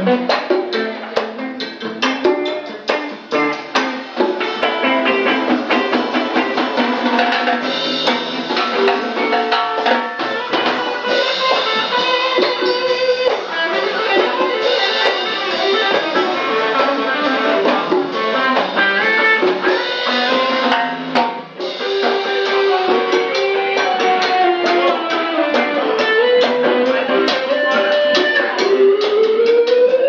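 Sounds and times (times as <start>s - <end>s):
latin band playing instrumental: 0.0s - 30.0s.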